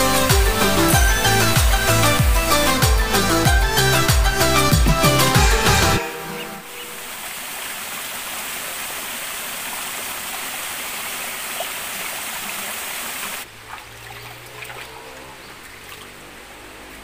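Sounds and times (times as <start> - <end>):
stream water running over rocks: 6.7 - 17.0.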